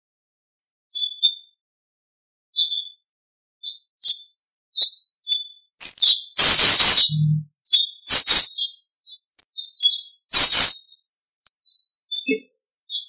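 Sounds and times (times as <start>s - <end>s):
songbirds chirping: 0.9s - 1.6s, 2.6s - 13.0s
harsh burst of noise: 6.4s - 7.0s.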